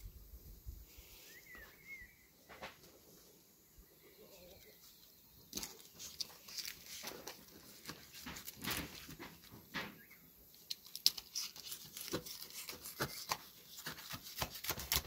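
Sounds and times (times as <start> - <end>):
knife crunching through crust: 10.8 - 15.0.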